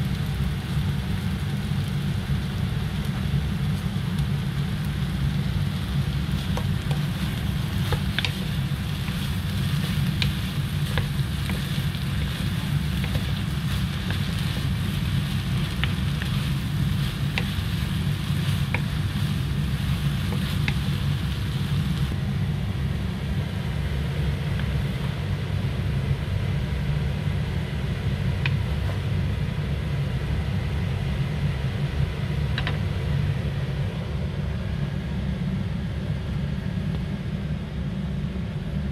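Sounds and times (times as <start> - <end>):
food sizzling in a pan: 0.0 - 22.2
steady low rumble: 0.0 - 38.9
wooden spatula clicking on pan: 7.8 - 9.3.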